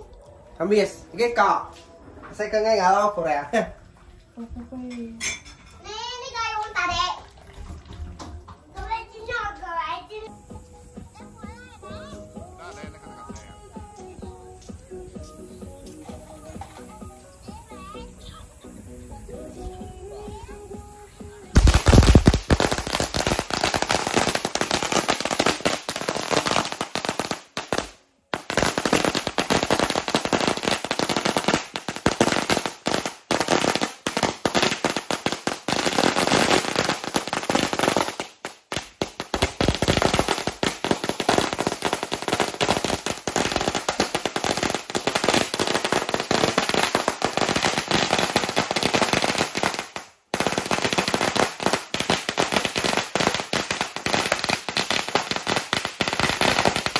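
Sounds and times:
fireworks cracks and bangs: 0:21.6 - 0:56.9.

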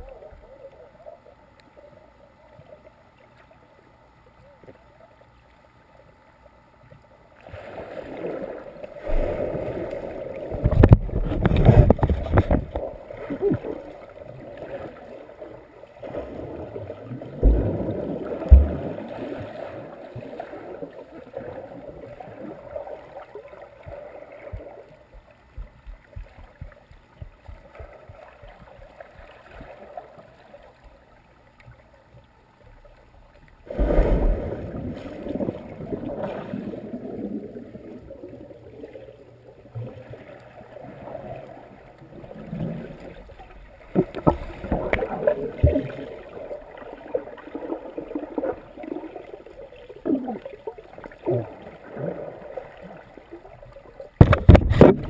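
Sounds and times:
muffled underwater churning: 0:00.0 - 0:55.0
dull underwater thumps: 0:10.5 - 0:12.9, 0:17.4 - 0:19.0, 0:23.8 - 0:29.4, 0:54.2 - 0:55.0.

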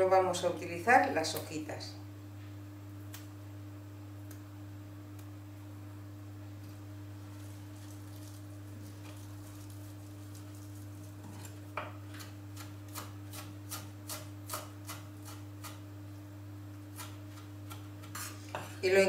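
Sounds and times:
steady low hum: 0:00.0 - 0:19.0
knife chopping on wooden board: 0:12.6 - 0:15.8.

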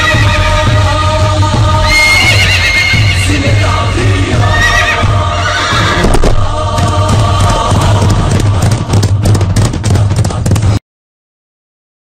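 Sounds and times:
song with chanting vocal: 0:00.0 - 0:10.6
steady low bass: 0:06.0 - 0:10.4.

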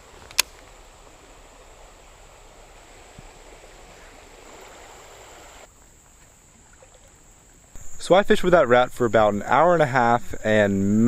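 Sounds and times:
creek water running over riffle: 0:00.0 - 0:10.7.

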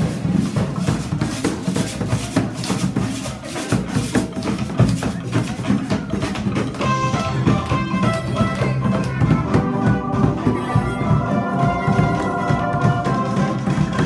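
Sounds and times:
held pitched notes: 0:06.6 - 0:14.0.

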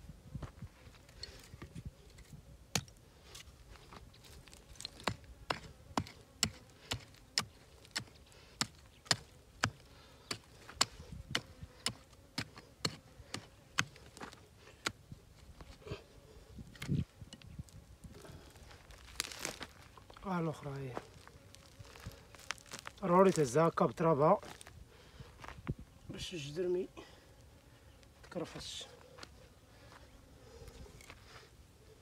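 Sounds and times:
hand hoe striking stony soil: 0:01.2 - 0:15.8, 0:16.7 - 0:17.4.

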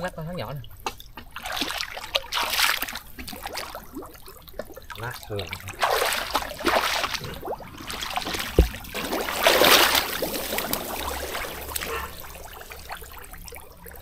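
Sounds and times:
water trickling and splashing: 0:00.0 - 0:14.0
dull thud: 0:08.2 - 0:11.4.

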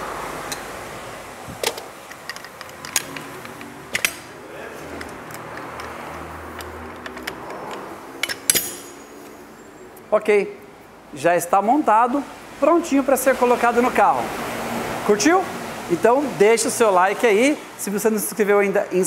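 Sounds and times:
metallic clinks and clanks: 0:02.0 - 0:04.3, 0:04.9 - 0:09.3.

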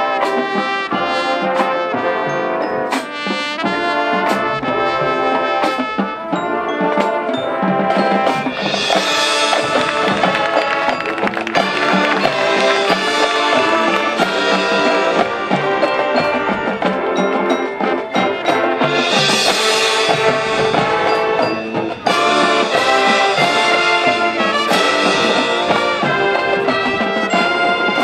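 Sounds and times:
marching band playing: 0:00.0 - 0:28.0.

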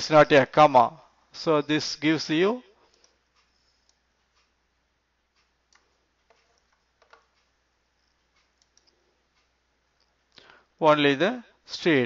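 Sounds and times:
mouse and keyboard clicks: 0:05.4 - 0:09.5.

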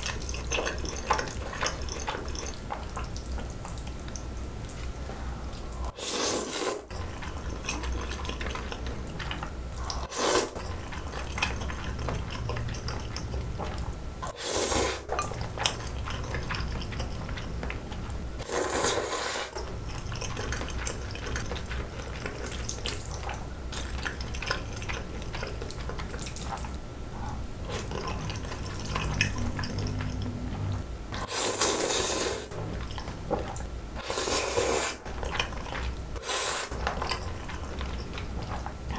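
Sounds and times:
noodle slurping: 0:05.9 - 0:08.9, 0:09.8 - 0:12.4, 0:18.4 - 0:26.7, 0:27.3 - 0:33.0, 0:34.0 - 0:38.9
wet chewing: 0:15.0 - 0:18.5, 0:19.5 - 0:38.9.

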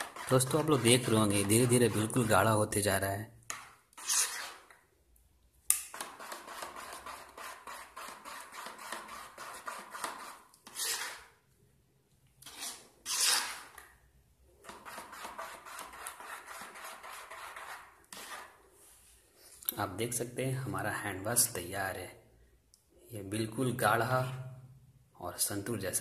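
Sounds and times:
plastic spoon scraping a bowl: 0:00.0 - 0:02.6, 0:03.5 - 0:04.9, 0:05.9 - 0:11.4, 0:12.4 - 0:14.0, 0:14.6 - 0:18.6.

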